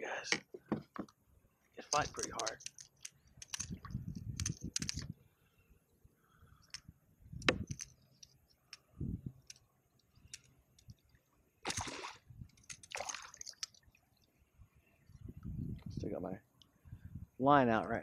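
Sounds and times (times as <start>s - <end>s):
fish splashing at water surface: 11.6s - 12.2s, 12.9s - 13.9s.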